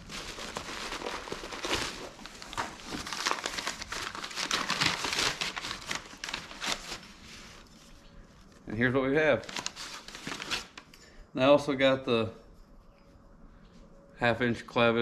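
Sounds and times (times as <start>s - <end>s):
packing paper crumpling: 0.0s - 8.7s, 9.3s - 10.9s.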